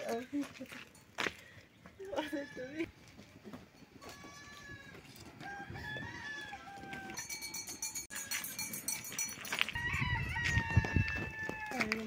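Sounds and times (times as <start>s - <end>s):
goats bleating: 4.0s - 5.1s.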